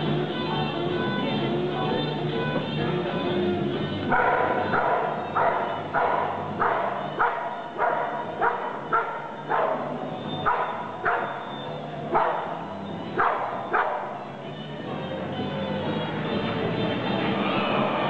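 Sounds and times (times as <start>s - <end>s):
dog barking sharply in a hall: 4.1s - 14.3s.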